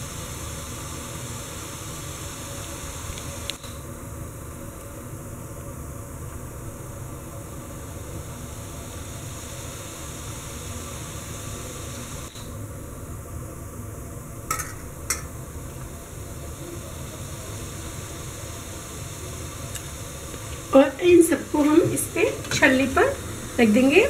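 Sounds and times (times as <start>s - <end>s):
water boiling hiss: 0.0s - 24.0s
sharp clicks on steel plate: 14.5s - 15.3s.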